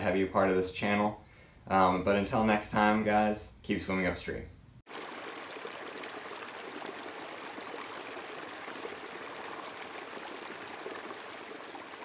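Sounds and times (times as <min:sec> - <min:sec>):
stream running over rocks: 0:04.9 - 0:12.0.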